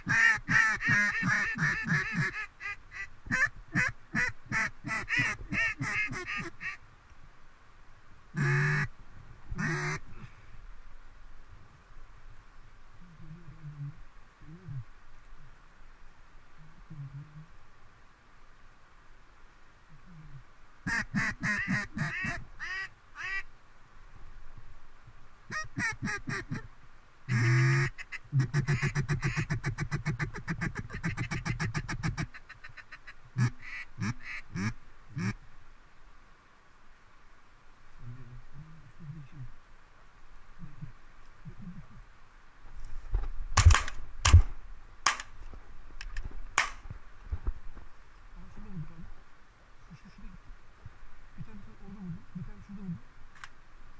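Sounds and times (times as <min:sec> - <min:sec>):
duck call feed chuckle: 0:00.0 - 0:06.8, 0:20.9 - 0:23.4, 0:25.5 - 0:26.7, 0:27.3 - 0:35.4
duck call quacks: 0:00.0 - 0:06.8, 0:08.4 - 0:08.9, 0:09.6 - 0:10.0, 0:20.8 - 0:23.5, 0:25.5 - 0:26.7, 0:27.3 - 0:35.4
duck call hail note: 0:25.5 - 0:26.6.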